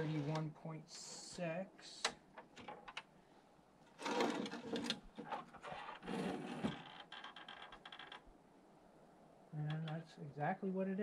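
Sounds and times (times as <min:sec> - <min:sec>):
metallic rattling and scraping: 0:00.0 - 0:00.4.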